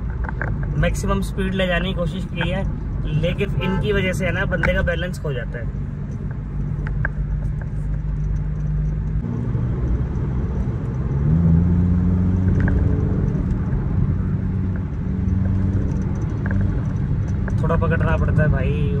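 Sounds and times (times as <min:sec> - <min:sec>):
road noise inside car: 0:00.0 - 0:19.0
car engine accelerating: 0:05.5 - 0:19.0.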